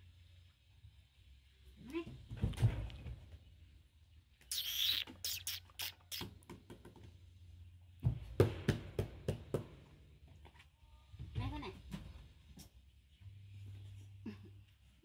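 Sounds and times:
light knocks and thuds: 0:02.1 - 0:03.4, 0:08.0 - 0:09.8.

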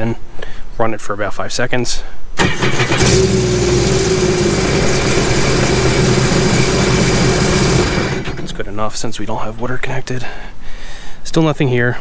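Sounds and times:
watercraft engine running: 0:02.7 - 0:08.6.

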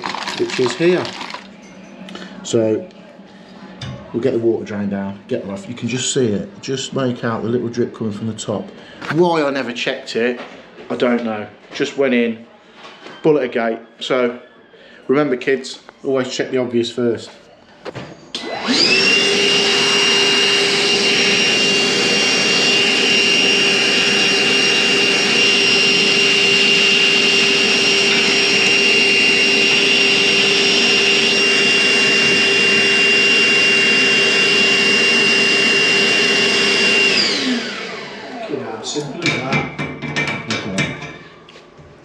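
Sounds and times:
vacuum cleaner whining: 0:00.0 - 0:03.1, 0:17.8 - 0:39.6.

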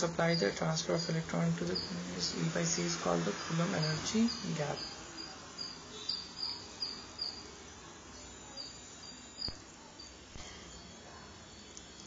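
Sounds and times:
background hiss: 0:00.0 - 0:12.0
high-pitched chirps: 0:03.8 - 0:12.0.

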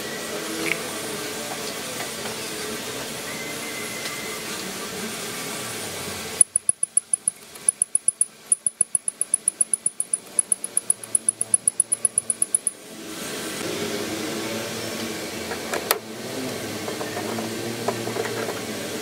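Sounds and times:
hand pump clicking: 0:06.4 - 0:12.7.

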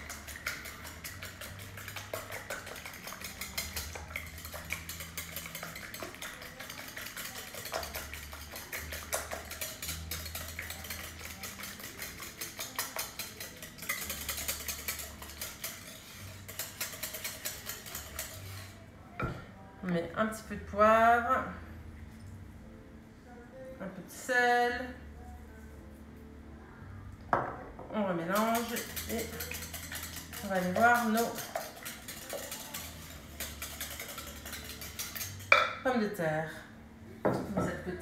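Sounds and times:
whisk beating in a bowl: 0:00.0 - 0:18.8, 0:28.1 - 0:35.8
wires scraping against a bowl: 0:00.0 - 0:19.0, 0:28.2 - 0:35.9.

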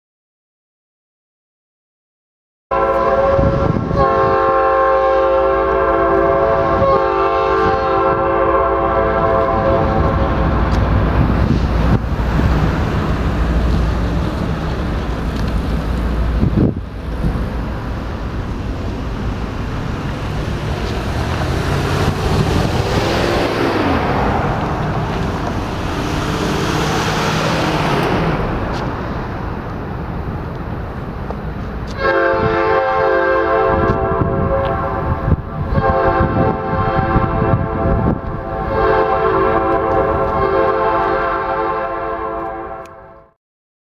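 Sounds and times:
locomotive air horn: 0:02.7 - 0:10.5, 0:31.9 - 0:43.4
diesel engines rumbling: 0:02.8 - 0:43.1
freight cars rolling on rails: 0:05.4 - 0:41.4.

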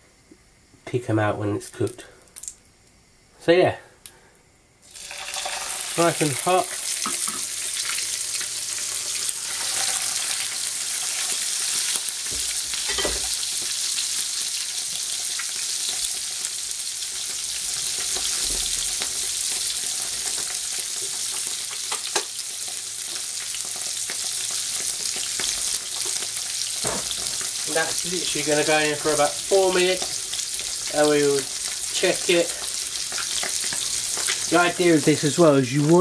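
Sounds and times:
fish fillets sizzling in a frying pan: 0:04.8 - 0:35.6.

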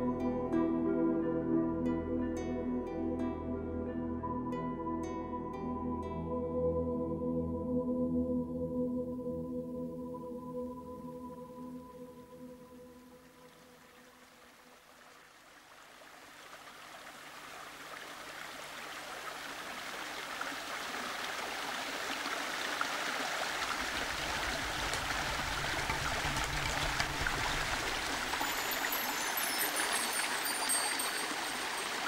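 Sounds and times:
stream running over stones: 0:13.1 - 0:32.0.

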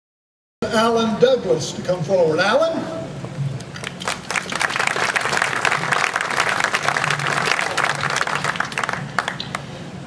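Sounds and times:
crowd applauding: 0:03.8 - 0:09.7.

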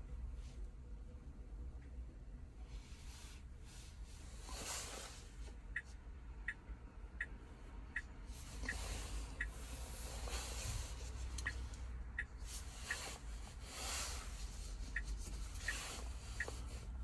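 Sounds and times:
low steady rumble: 0:00.0 - 0:17.0
soft rustling handling noise: 0:02.6 - 0:06.1, 0:08.2 - 0:17.0.

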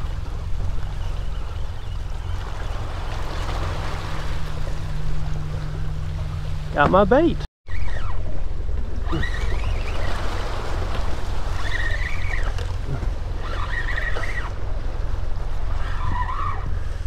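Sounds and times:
low rumble: 0:00.0 - 0:11.6
water lapping against boat: 0:00.0 - 0:17.0.

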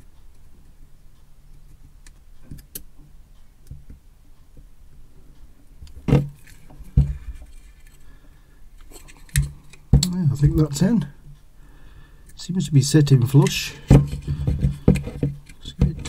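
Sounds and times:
sharp knocks: 0:13.8 - 0:16.0.

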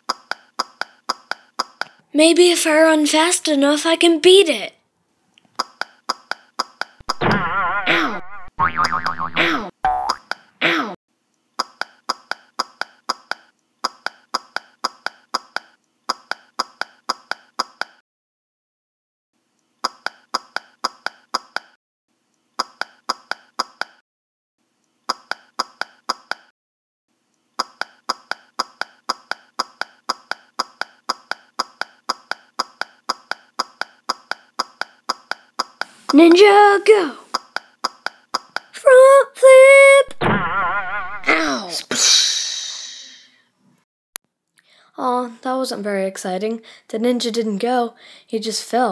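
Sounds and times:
running footsteps sound effect: 0:27.6 - 0:36.2.

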